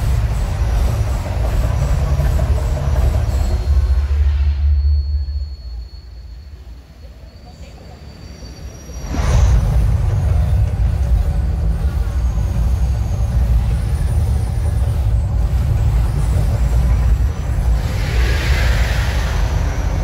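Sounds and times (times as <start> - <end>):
deep rumble: 0.0 - 5.9, 9.0 - 20.0
hissing rush: 8.4 - 20.0.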